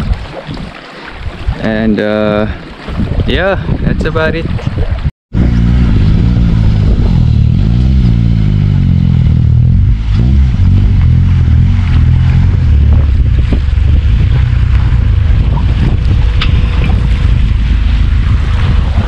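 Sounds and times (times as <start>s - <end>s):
engine revving: 5.3s - 19.0s.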